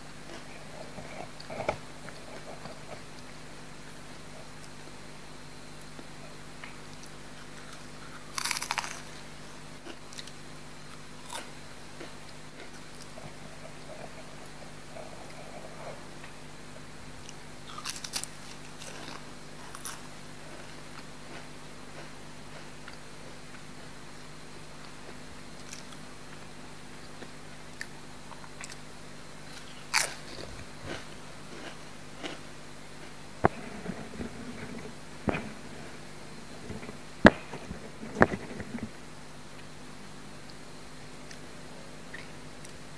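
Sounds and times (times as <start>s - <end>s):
crunching and chewing: 0.1s - 4.9s, 5.8s - 24.0s, 24.8s - 39.0s
crunch of biting a chip: 7.4s - 9.2s, 11.2s - 13.1s, 17.7s - 23.0s, 29.5s - 32.4s
crisp bite into crunchy snack: 7.6s - 9.1s, 17.7s - 20.0s.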